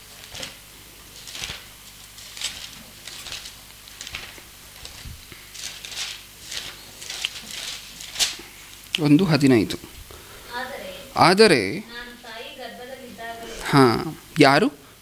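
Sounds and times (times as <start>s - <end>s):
paper pages rustling: 0.1s - 8.6s.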